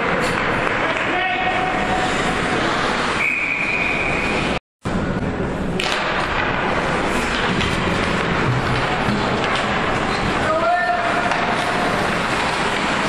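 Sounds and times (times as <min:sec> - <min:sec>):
arena noise: 0:00.0 - 0:13.0
referee's whistle: 0:03.2 - 0:04.4.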